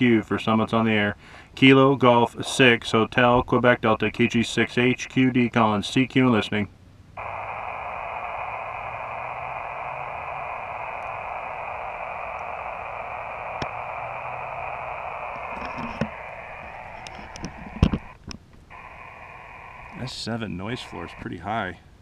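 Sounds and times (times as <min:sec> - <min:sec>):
radio band noise hiss: 0:07.2 - 0:22.0.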